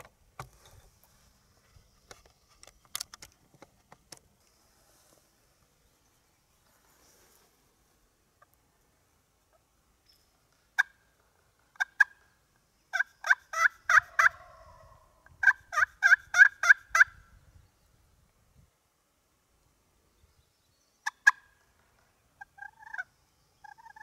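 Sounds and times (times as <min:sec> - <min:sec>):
turkey yelping: 0:12.9 - 0:17.1, 0:21.0 - 0:21.5, 0:22.4 - 0:24.0.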